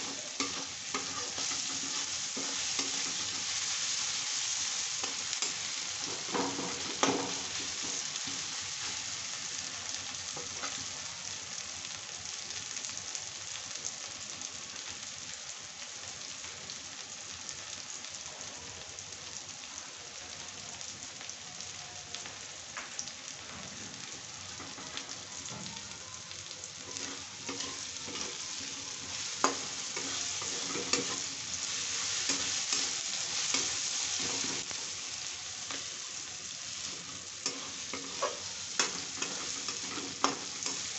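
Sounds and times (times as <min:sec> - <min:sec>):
metal spatula scraping a pan: 0:00.0 - 0:04.1, 0:26.9 - 0:34.6
onions sizzling in hot oil: 0:00.0 - 0:40.9.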